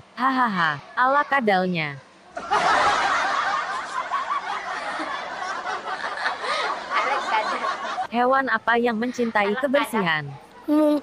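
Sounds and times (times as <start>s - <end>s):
people laughing: 2.3s - 8.1s.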